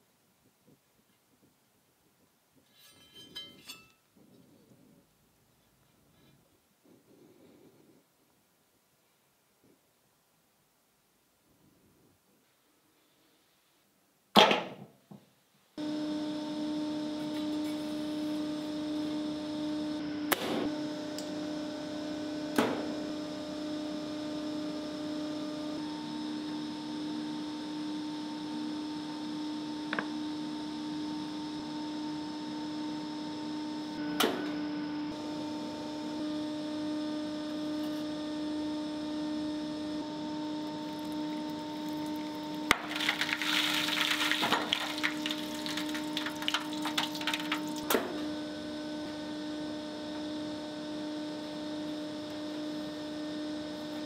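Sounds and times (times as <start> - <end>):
electrical hum: 15.8 - 54.0.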